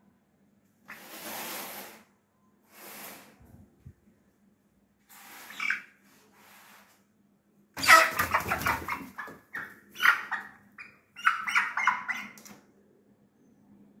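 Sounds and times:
wings flapping: 0:07.8 - 0:09.4
hen squawking: 0:07.8 - 0:12.4.

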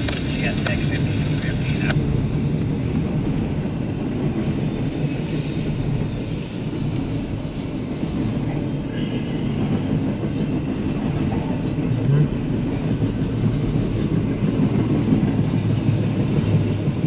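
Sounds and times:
train wheels rumbling and rattling: 0:00.0 - 0:17.0
high wheel squeal: 0:03.9 - 0:08.4.

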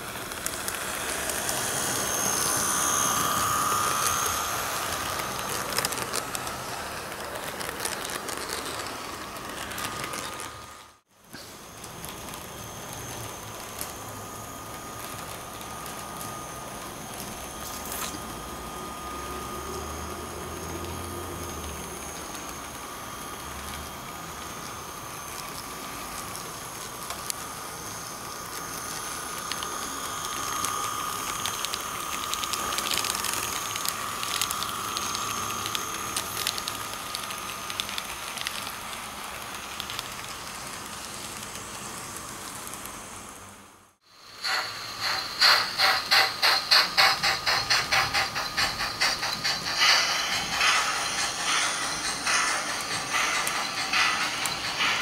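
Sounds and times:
model steam locomotive chuffing: 0:00.0 - 0:10.4, 0:44.2 - 0:55.0
model train whine and hiss: 0:00.0 - 0:55.0.

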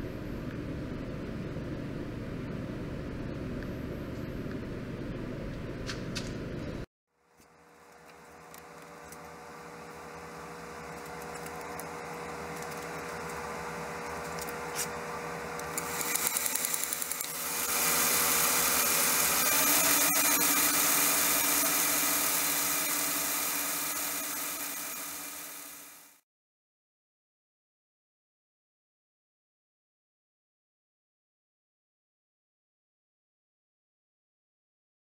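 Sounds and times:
motor hum: 0:00.0 - 0:26.2
high hiss and whine: 0:07.8 - 0:26.2.

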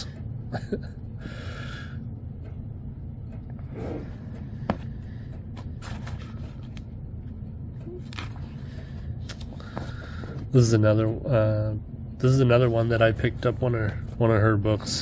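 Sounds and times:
steady low hum: 0:00.0 - 0:15.0
paper rustling: 0:05.6 - 0:06.8.

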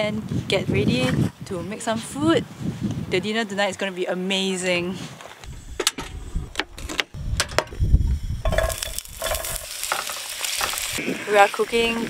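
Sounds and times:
vegetables sizzling in hot oil: 0:07.8 - 0:12.0
frying pan and utensils knocking: 0:08.4 - 0:10.8.

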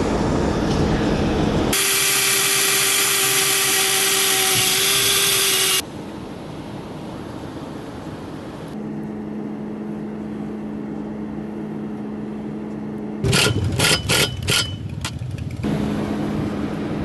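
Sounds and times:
cordless drill drilling into metal: 0:01.8 - 0:05.8
steady low hum: 0:05.7 - 0:17.0.

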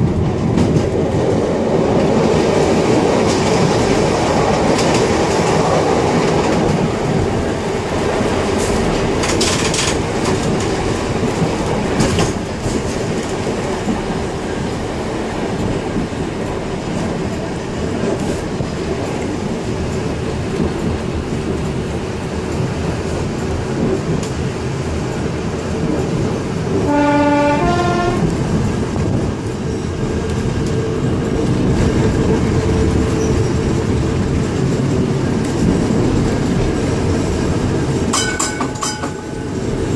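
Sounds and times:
tram rumbling on track: 0:00.0 - 0:39.9
wheels clicking over rail joints: 0:00.0 - 0:39.9
two-note horn blast: 0:26.9 - 0:28.3.

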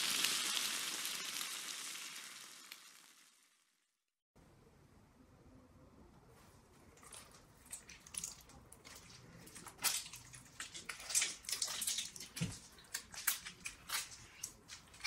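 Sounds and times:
lemon squeezing squelches: 0:06.8 - 0:15.0.

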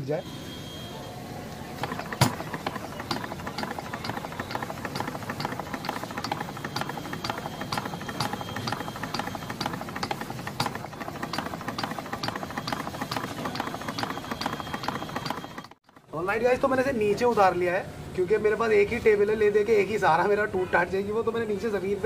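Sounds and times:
small petrol engine clattering: 0:01.3 - 0:17.2
sharp engine ticks: 0:01.8 - 0:16.2.

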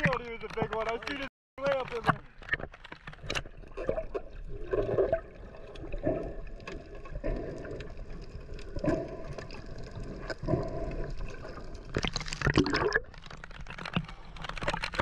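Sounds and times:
faint clicks: 0:00.0 - 0:03.5
water gurgling and bubbling: 0:03.4 - 0:13.4.

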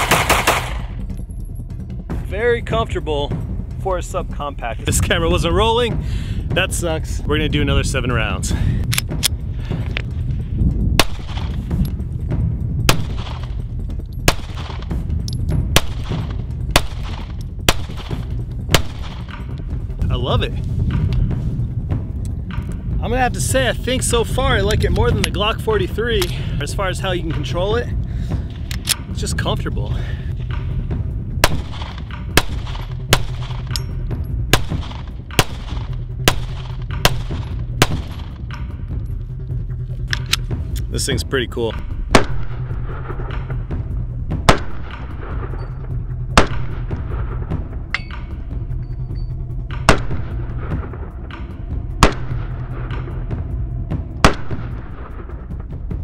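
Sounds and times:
pistol shots: 0:00.0 - 0:01.0, 0:11.0 - 0:11.6, 0:12.9 - 0:13.5, 0:14.3 - 0:15.0, 0:15.8 - 0:19.4, 0:31.4 - 0:33.9, 0:34.5 - 0:38.4, 0:42.1 - 0:43.1, 0:44.5 - 0:45.4, 0:46.4 - 0:47.0, 0:49.8 - 0:50.9, 0:52.0 - 0:52.9, 0:54.2 - 0:55.1.

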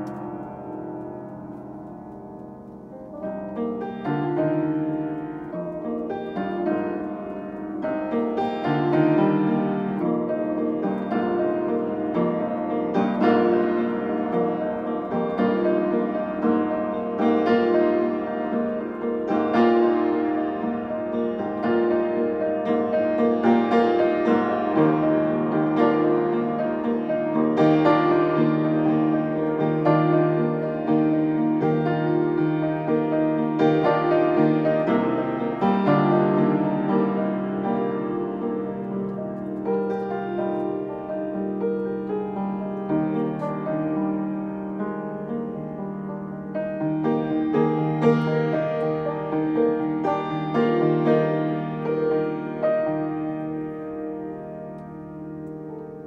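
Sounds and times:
solo grand piano: 0:00.0 - 0:56.0.

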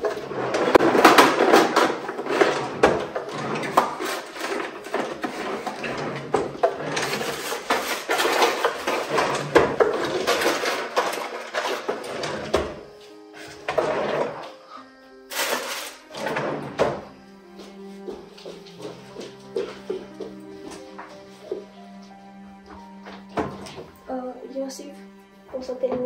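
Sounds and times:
wooden drawers sliding and knocking: 0:00.0 - 0:12.8, 0:16.1 - 0:17.1
loose things clattering and rustling: 0:00.0 - 0:14.6, 0:15.3 - 0:17.1.

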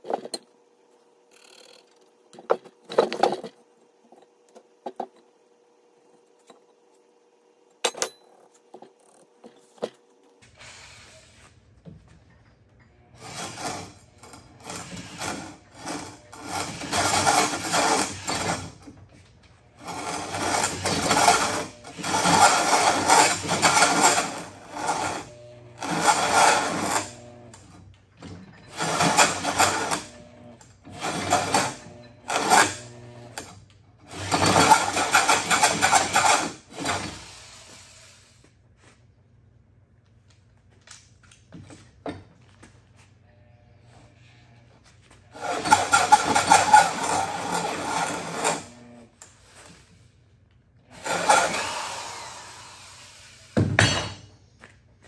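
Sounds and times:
drill cutting wood: 0:19.8 - 0:27.6, 0:28.7 - 0:33.4, 0:34.1 - 0:38.2, 0:45.4 - 0:49.1, 0:50.9 - 0:53.6.

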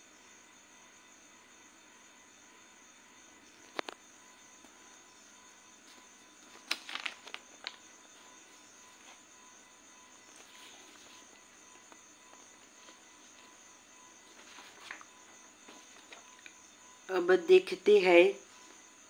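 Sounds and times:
paper rustling: 0:06.4 - 0:07.8, 0:14.3 - 0:16.5.

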